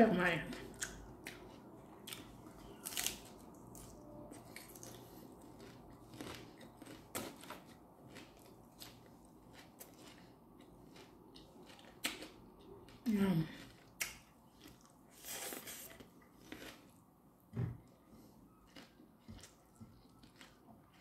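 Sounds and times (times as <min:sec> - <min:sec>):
person chewing lettuce: 0:00.5 - 0:17.0, 0:18.5 - 0:21.0.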